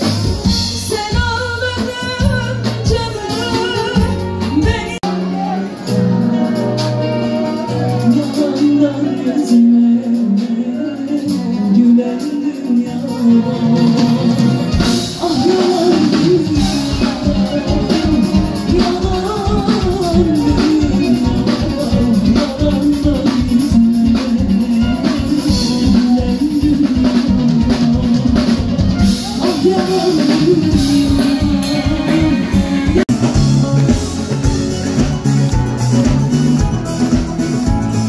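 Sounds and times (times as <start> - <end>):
live band with drums and guitar: 0.0 - 38.0
woman singing into a microphone: 0.5 - 14.2, 15.0 - 28.6, 29.3 - 33.0
heavy bass: 12.8 - 38.0.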